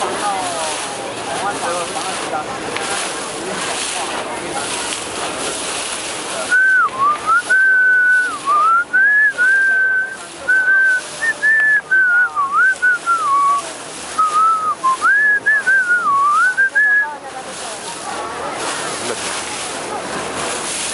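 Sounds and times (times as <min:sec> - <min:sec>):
person whistling a tune: 0:06.5 - 0:13.6, 0:14.2 - 0:17.1.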